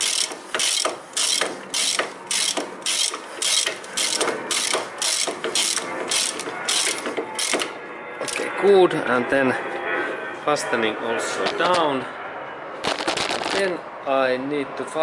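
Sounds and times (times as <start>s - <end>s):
ratchet wrench clicking: 0.0s - 7.6s.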